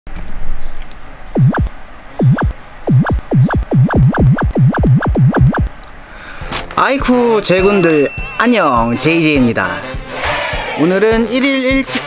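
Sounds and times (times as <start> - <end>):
swooping synthesized tones: 1.3 - 5.8.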